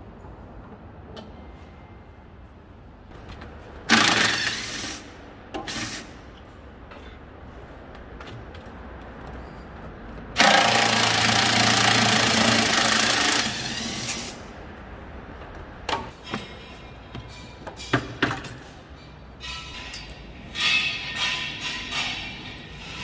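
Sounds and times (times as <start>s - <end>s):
power tool running: 10.4s - 14.4s.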